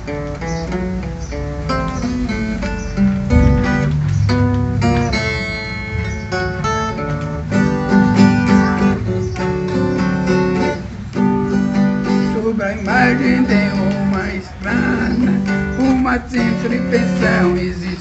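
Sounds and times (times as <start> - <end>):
plucked folk guitar melody: 0.0 - 18.0.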